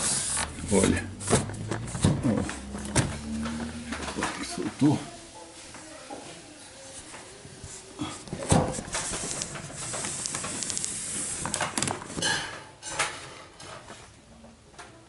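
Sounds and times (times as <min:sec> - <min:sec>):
plastic rubbing and clicking: 0:00.0 - 0:04.8, 0:08.3 - 0:12.2
plastic scraping: 0:00.0 - 0:04.9.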